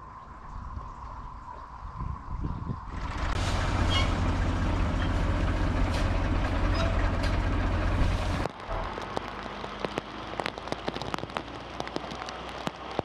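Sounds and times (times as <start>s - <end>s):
tractor engine rumbling: 2.8s - 13.0s
rain falling: 2.9s - 13.0s.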